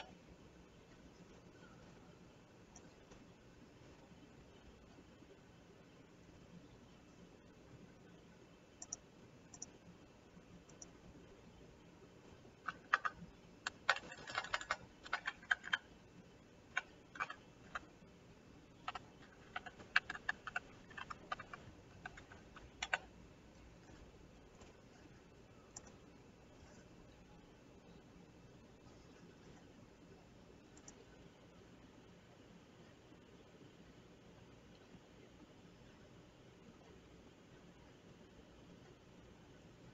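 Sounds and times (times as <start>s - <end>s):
computer keyboard typing: 2.7s - 3.3s, 8.8s - 9.8s, 12.6s - 16.0s, 16.7s - 18.0s, 18.7s - 26.9s
mouse clicks: 8.8s - 9.8s, 10.6s - 11.0s, 18.8s - 23.1s, 23.8s - 26.9s, 30.7s - 31.1s.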